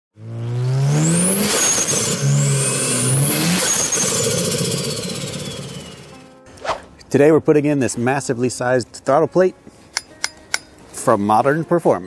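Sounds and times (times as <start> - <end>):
car engine accelerating: 0.2 - 6.3.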